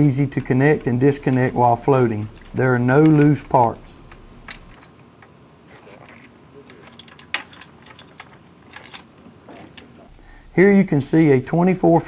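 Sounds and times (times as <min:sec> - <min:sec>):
light metal clicks and knocks: 0:00.0 - 0:05.4, 0:06.1 - 0:10.1.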